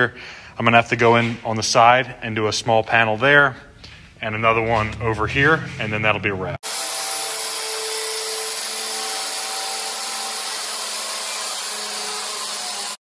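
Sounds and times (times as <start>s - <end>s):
angle grinder cutting steel: 6.6s - 13.0s.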